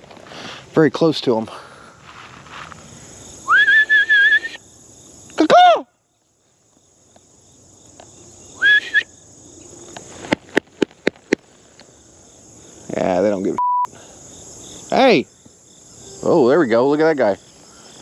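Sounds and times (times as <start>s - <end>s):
insects buzzing: 0.0s - 18.0s
wordless rising and falling call: 2.4s - 4.6s
person whistling: 3.4s - 4.6s, 8.6s - 9.1s.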